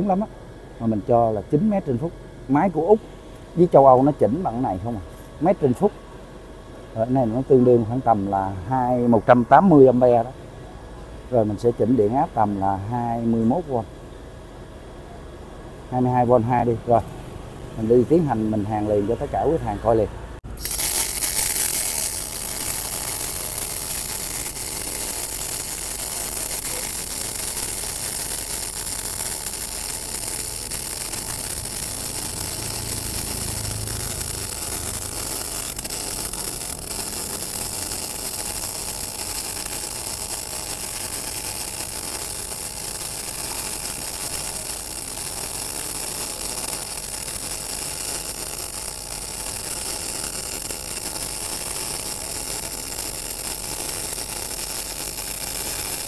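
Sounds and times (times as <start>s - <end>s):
welding arc hissing: 15.9s - 56.0s.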